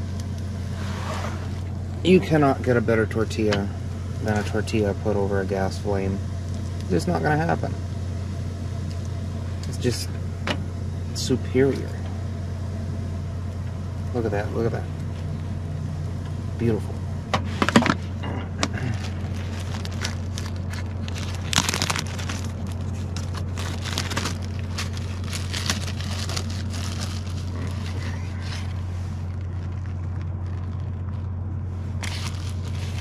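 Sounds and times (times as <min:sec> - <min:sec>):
steady low hum: 0:00.0 - 0:33.0
food wrapping crinkling: 0:18.6 - 0:33.0.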